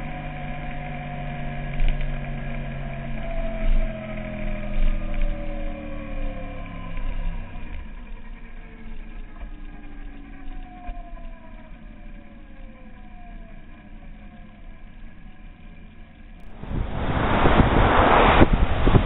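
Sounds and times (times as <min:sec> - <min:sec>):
motorcycle engine decelerating: 0:00.0 - 0:19.0
road noise: 0:16.4 - 0:19.0
wind buffeting microphone: 0:16.4 - 0:19.0.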